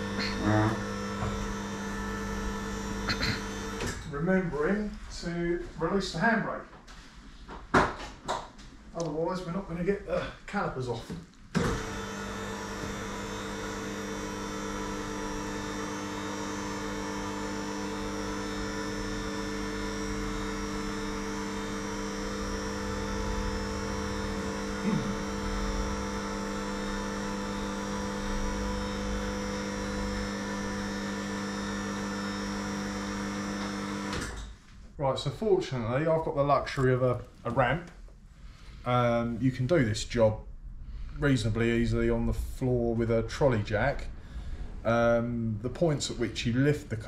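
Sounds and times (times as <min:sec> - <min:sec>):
car lift motor humming: 0:00.0 - 0:04.2, 0:11.5 - 0:34.6.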